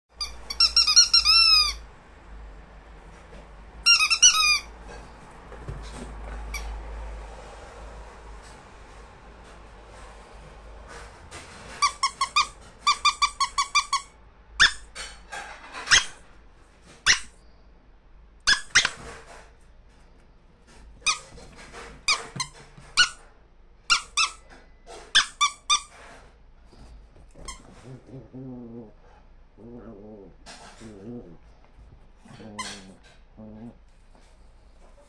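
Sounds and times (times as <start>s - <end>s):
dog's squeaky toy squeaking: 0.1s - 1.9s, 3.8s - 4.8s, 11.7s - 16.2s, 17.0s - 17.4s, 18.4s - 19.1s, 21.0s - 21.4s, 22.0s - 23.2s, 23.9s - 24.5s, 25.1s - 26.0s, 27.4s - 28.1s, 32.3s - 33.0s.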